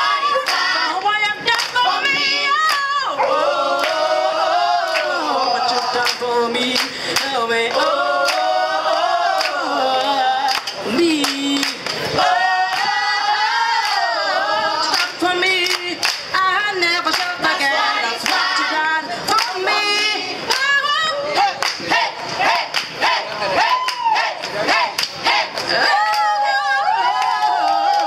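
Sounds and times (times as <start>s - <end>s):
woman singing into microphone: 0.0s - 4.0s, 4.9s - 8.4s, 9.3s - 12.8s, 13.9s - 21.6s
choir singing: 0.0s - 15.7s, 16.7s - 20.5s
hands clapping on the beat: 0.4s - 1.8s, 2.6s - 2.9s, 3.8s - 4.0s, 4.8s - 13.0s, 14.9s - 16.4s, 17.0s - 17.4s, 18.2s - 18.6s, 19.3s - 19.6s, 20.5s - 20.8s, 21.4s - 26.4s.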